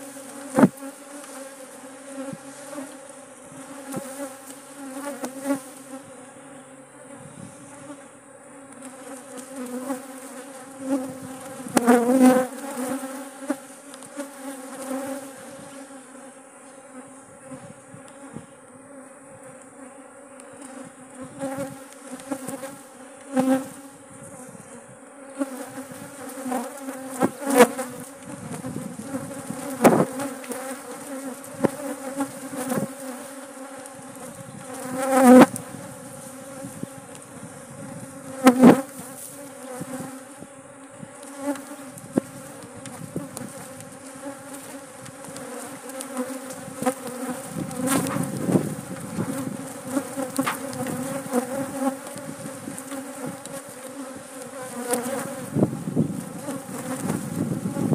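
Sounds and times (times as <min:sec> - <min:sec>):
bee flying past buzzing: 0:00.0 - 0:57.9
swarm of bees buzzing: 0:00.0 - 0:57.9.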